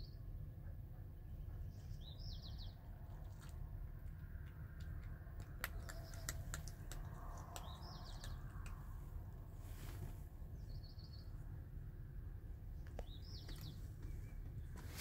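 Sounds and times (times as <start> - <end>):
low rumble: 0.0 - 14.8
cat chewing and licking: 3.1 - 9.2.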